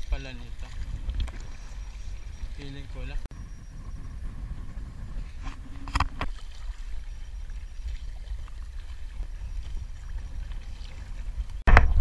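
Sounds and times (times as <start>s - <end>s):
paddle splashing water: 0.0s - 3.3s, 5.1s - 12.0s
water trickling: 5.8s - 11.7s.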